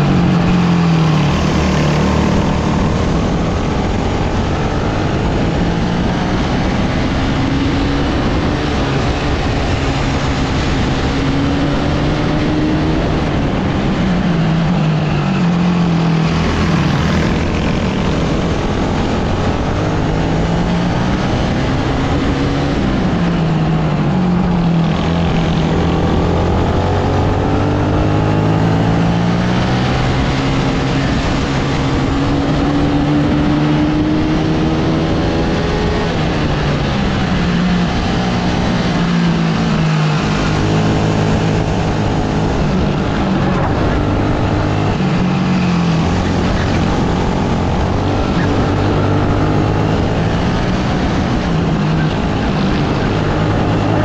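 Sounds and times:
kart engine at racing pace: 0.0s - 54.0s.

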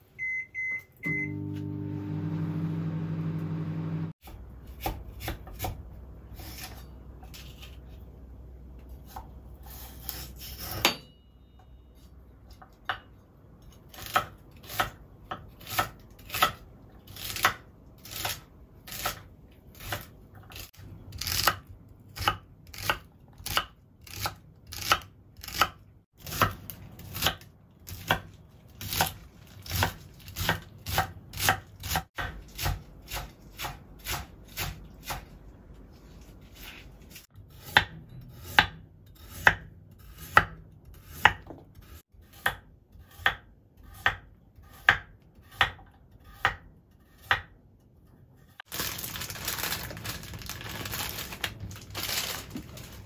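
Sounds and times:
knife chopping celery on board: 4.2s - 7.7s, 13.9s - 21.6s, 22.2s - 35.4s, 36.5s - 47.6s.

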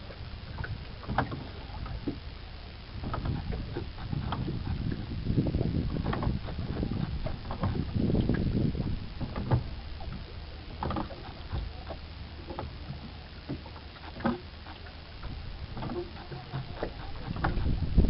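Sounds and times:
wind rumble on microphone: 0.0s - 18.0s
oar knocking in its mount: 15.3s - 17.8s.

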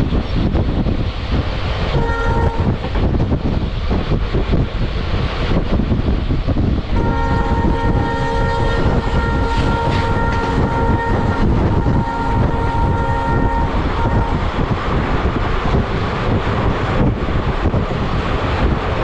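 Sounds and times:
train rumble: 0.0s - 19.0s
train horn blast: 1.9s - 2.8s, 6.9s - 14.6s.

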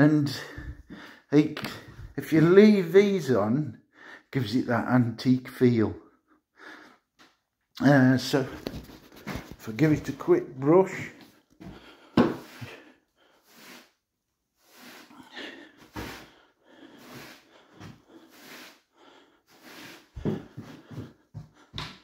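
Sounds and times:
brush sweeping wooden floor: 12.3s - 14.0s, 14.6s - 15.1s, 15.8s - 18.8s, 19.5s - 21.1s.

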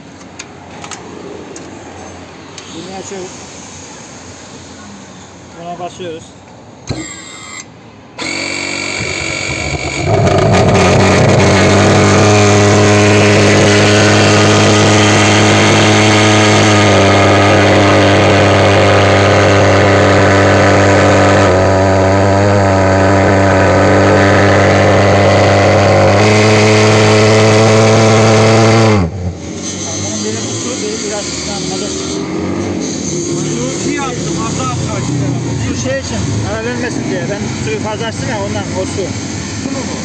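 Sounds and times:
pulse-jet fogger engine droning: 6.8s - 26.3s.

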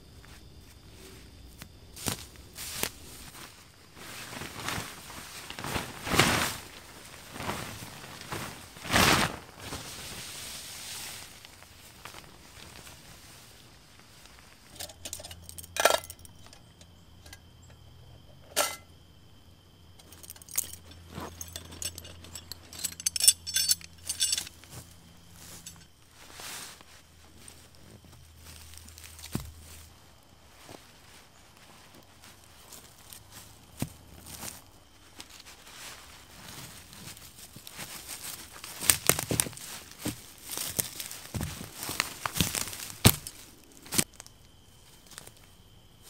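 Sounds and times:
rustling: 0.1s - 16.6s, 20.0s - 45.5s
metallic clinks and jangles: 14.7s - 16.6s, 20.0s - 24.8s.

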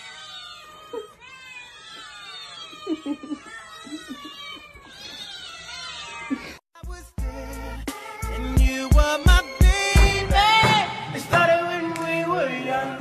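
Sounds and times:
many cats meowing: 0.0s - 6.6s.

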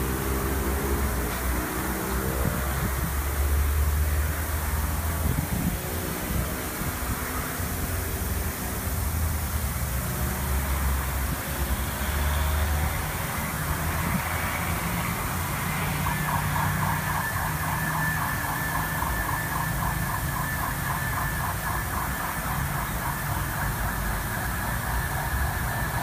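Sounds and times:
fog misting machine running: 0.0s - 26.0s
steady high tone: 10.4s - 26.0s
fast rhythmic pulsing: 15.1s - 26.0s.

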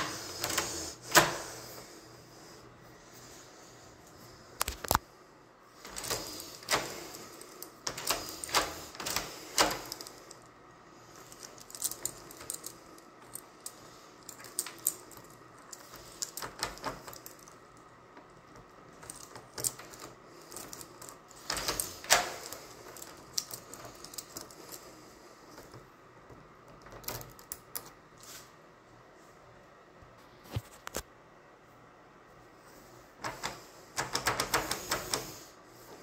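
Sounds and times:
keys jangling: 11.2s - 17.6s, 18.9s - 24.9s.

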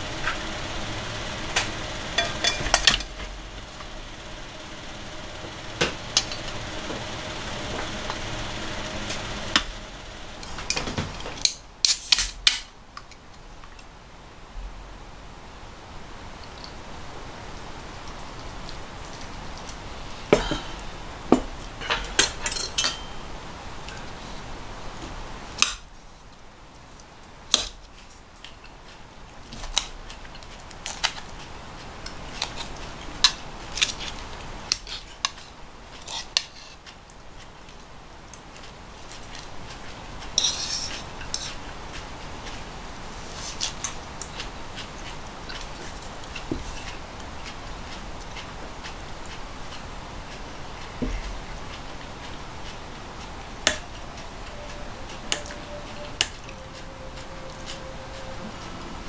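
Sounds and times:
metal bowl scraping pot: 0.0s - 3.8s
forks clinking on ceramic plates: 2.2s - 3.1s, 21.8s - 23.3s.

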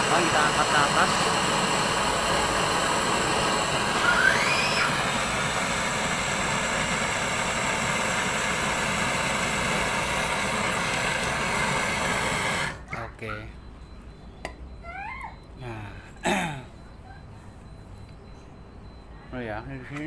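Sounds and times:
gas torch hissing: 0.0s - 12.9s.

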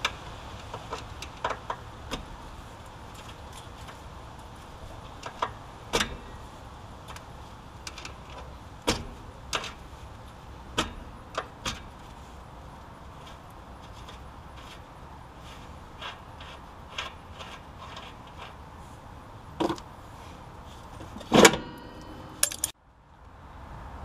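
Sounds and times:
steady low hum: 0.0s - 22.8s
hand tools clinking on metal: 21.4s - 22.7s.

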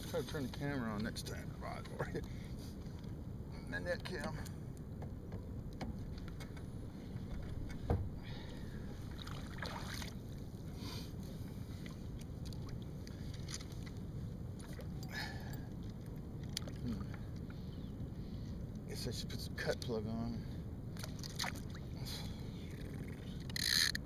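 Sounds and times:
fishing tackle rustling and clicking: 22.7s - 24.0s.

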